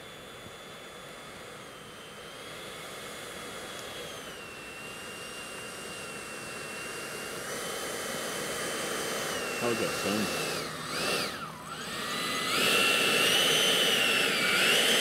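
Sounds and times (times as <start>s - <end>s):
electric ducted fan whining: 0.0s - 15.0s.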